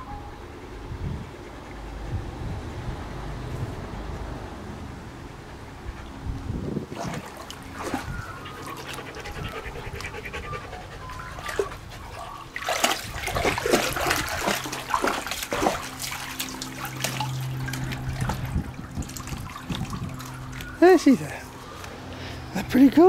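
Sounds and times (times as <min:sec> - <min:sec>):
dog splashing through water: 0:06.9 - 0:09.7, 0:11.0 - 0:21.5
water dripping: 0:12.5 - 0:20.8.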